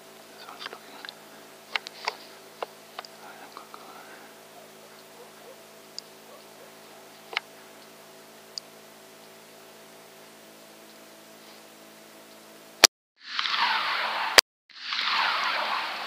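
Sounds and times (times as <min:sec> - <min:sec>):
faint electronic hum: 0:00.0 - 0:12.8
suppressed rifle shot: 0:13.3 - 0:16.0.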